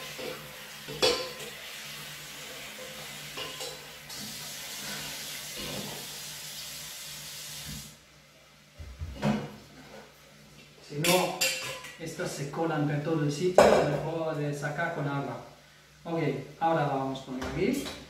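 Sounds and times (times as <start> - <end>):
tap water running into a bowl: 0.0 - 8.0.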